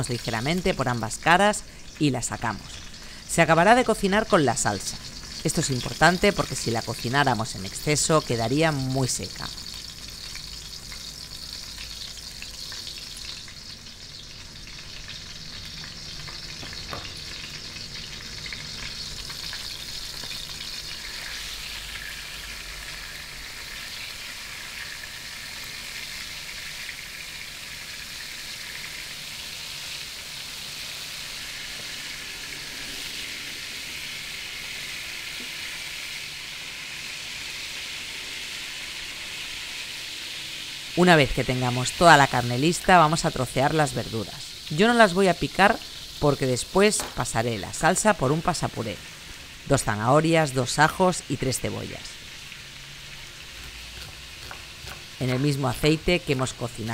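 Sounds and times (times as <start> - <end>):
meat sizzling in a pan: 0.0 - 56.9.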